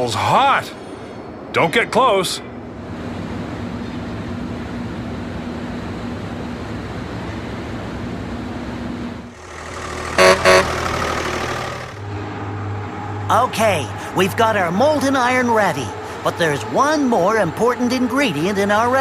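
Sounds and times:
machinery rumble: 0.0 - 19.0
vehicle horn toots: 10.0 - 12.0.

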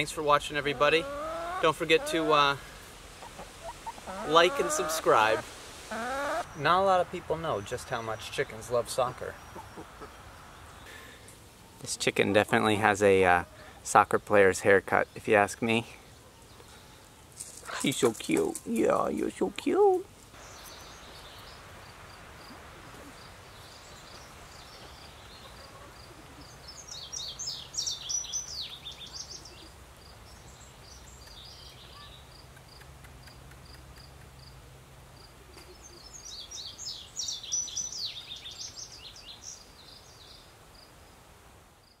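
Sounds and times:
songbird twittering: 22.4 - 33.8, 35.5 - 40.4.

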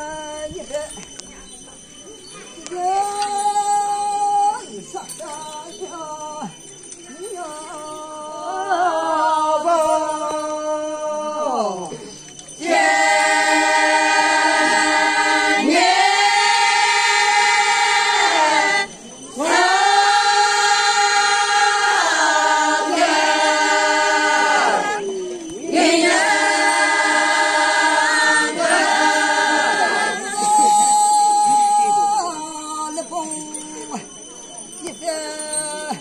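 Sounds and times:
women singing unaccompanied: 7.3 - 11.9, 12.6 - 34.0.

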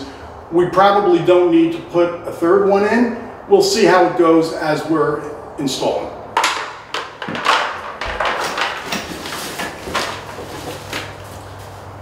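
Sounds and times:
packaging rustling in cardboard box: 8.2 - 12.0.

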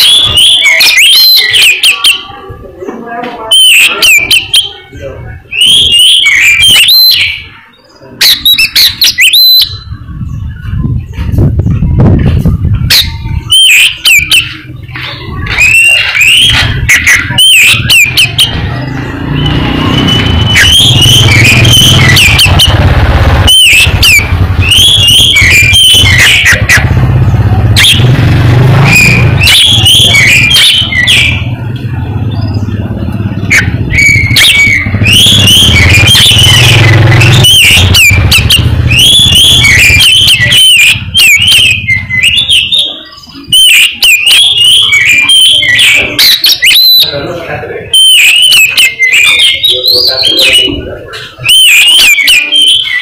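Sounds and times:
bird singing whistled phrases: 0.0 - 2.5, 3.4 - 11.2, 12.8 - 27.0, 27.8 - 53.0
engine low rumble: 18.5 - 24.7, 26.8 - 30.5, 31.4 - 40.1.

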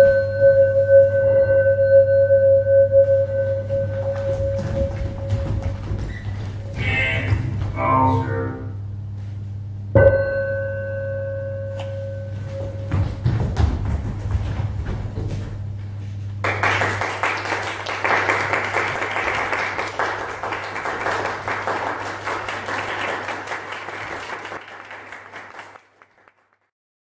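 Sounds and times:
audience applause: 16.4 - 26.7.

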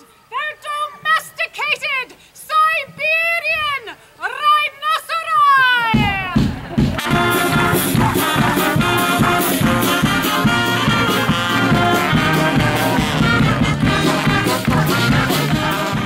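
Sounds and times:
brass band music: 6.4 - 16.0.

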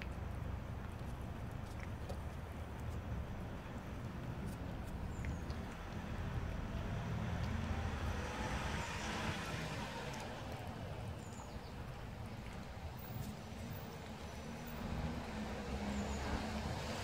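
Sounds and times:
cats chewing wet food: 0.0 - 15.3
vehicle passing: 5.9 - 17.0.

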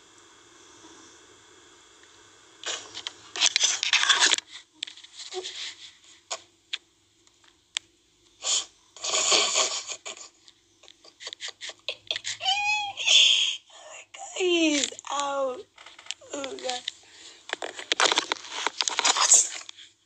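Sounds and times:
phone handling rustle: 15.8 - 19.8.

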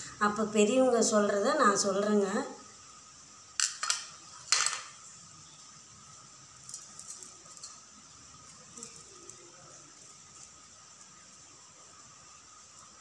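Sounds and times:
dry grains ticking: 6.5 - 13.0.

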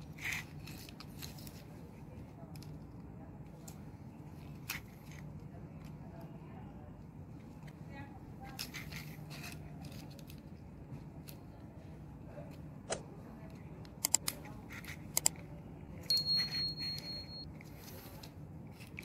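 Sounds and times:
faint low hum: 0.0 - 19.0
high steady tone: 16.0 - 17.5.

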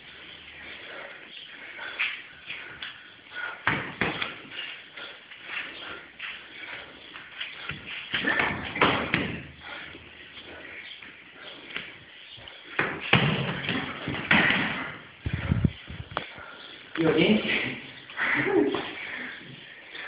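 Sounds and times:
strikes landing as slaps and thuds: 3.6 - 4.4, 8.1 - 9.4, 12.8 - 15.0.

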